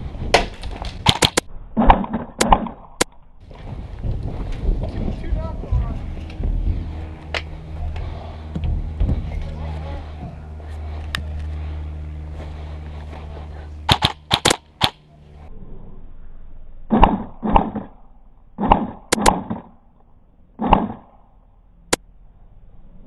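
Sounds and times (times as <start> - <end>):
low steady hum: 0.0 - 23.0
airsoft guns firing: 0.4 - 2.8, 13.9 - 15.0.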